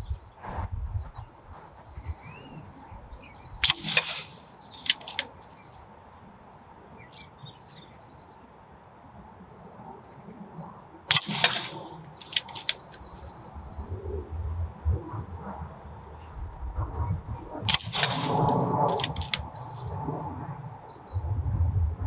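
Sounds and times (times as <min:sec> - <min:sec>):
faint birds chirping: 0:00.0 - 0:14.2
air rifle shots: 0:03.6 - 0:05.4, 0:11.1 - 0:13.0, 0:17.7 - 0:19.9
rifle lever clicks: 0:03.6 - 0:05.5, 0:11.1 - 0:13.1, 0:17.7 - 0:19.7.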